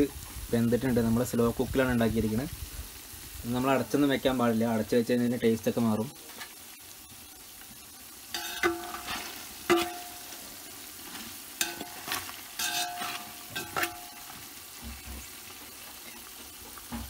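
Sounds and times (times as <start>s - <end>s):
meat sizzling in oil: 0.0s - 17.0s
metal spoon scraping a pot: 8.3s - 10.3s, 11.1s - 14.3s.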